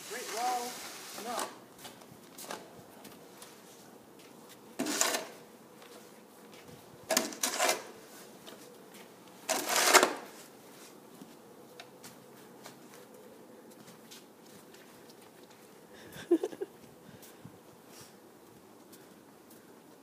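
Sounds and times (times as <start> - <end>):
shovel scraping snowy concrete: 0.0 - 1.6, 4.8 - 5.4, 7.1 - 8.3, 9.4 - 10.5.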